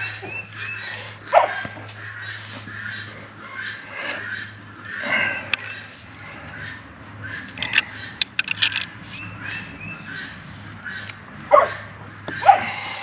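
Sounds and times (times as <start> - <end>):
dog barking: 1.3 - 1.7, 11.5 - 12.7
light clicks and clinks: 7.5 - 8.9.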